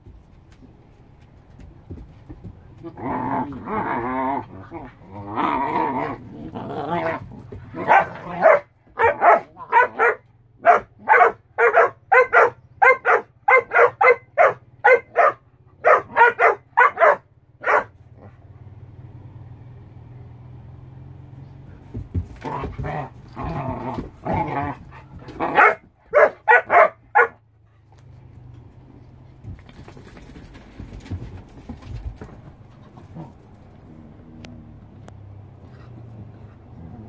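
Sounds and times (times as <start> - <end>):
dogs growling and whining: 2.8 - 10.2, 22.2 - 25.8, 32.7 - 37.0
dog barking sharply: 7.9 - 17.9, 25.5 - 27.4.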